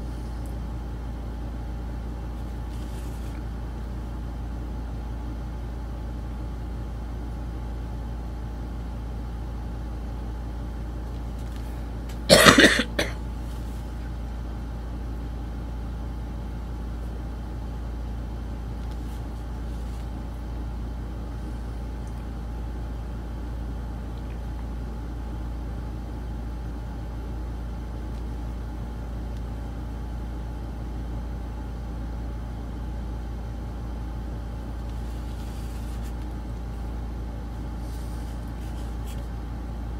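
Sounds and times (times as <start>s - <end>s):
low background hum: 0.0s - 39.9s
loud cough: 12.3s - 13.2s.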